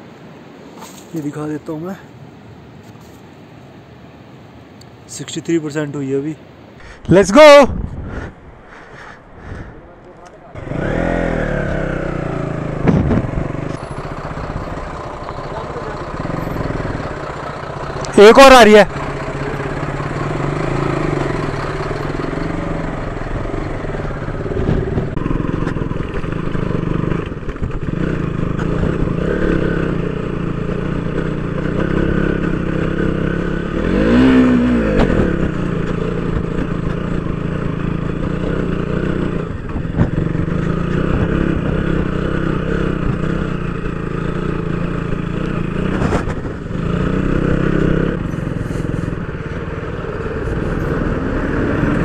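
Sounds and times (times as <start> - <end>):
motorcycle engine running: 10.5 - 52.0.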